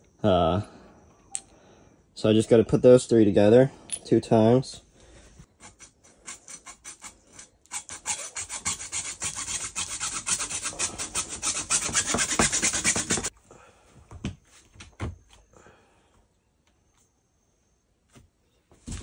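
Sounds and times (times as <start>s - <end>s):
hacksaw cutting plastic tubing: 5.5s - 13.3s.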